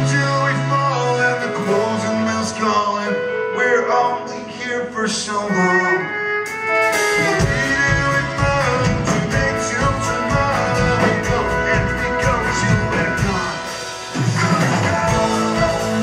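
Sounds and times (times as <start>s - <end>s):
band drums and bass: 0.0s - 2.2s, 6.4s - 16.0s
acoustic guitar: 0.0s - 16.0s
melodic line: 0.0s - 16.0s.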